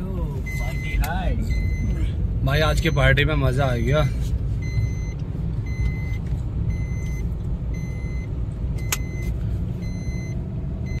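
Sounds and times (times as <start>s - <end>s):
car road and engine rumble: 0.0s - 11.0s
high electronic beep: 0.4s - 2.0s, 4.6s - 9.2s, 9.8s - 11.0s.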